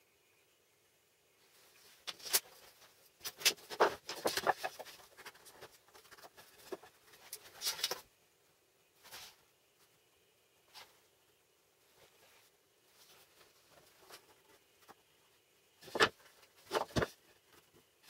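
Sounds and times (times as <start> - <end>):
clicks knocks and scrapes of sled arms: 2.0 - 8.0, 15.8 - 17.9.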